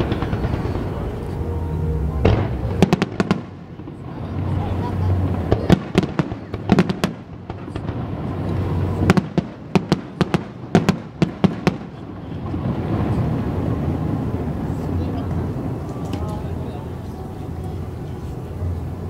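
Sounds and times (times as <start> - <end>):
fireworks bangs and cracks: 0.0 - 17.1
low rumble: 0.0 - 19.0.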